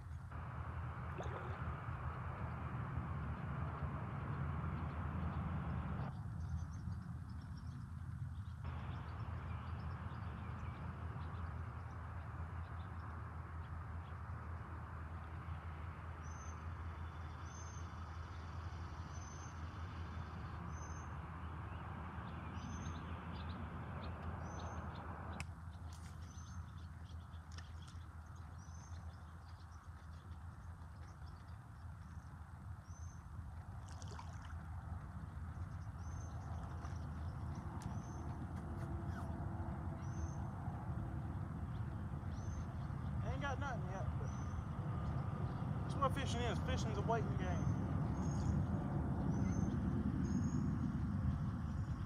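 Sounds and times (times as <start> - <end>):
low outdoor rumble and hiss: 0.0 - 52.0
bird chirping: 16.2 - 33.3, 35.6 - 52.0.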